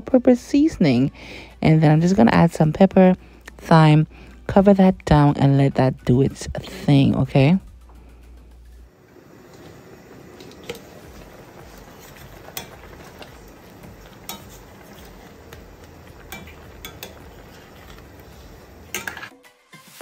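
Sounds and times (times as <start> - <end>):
steady hiss: 8.9 - 19.0
metal ladle clinking against pot: 12.4 - 13.3, 14.2 - 15.0, 16.2 - 18.1, 18.9 - 19.3.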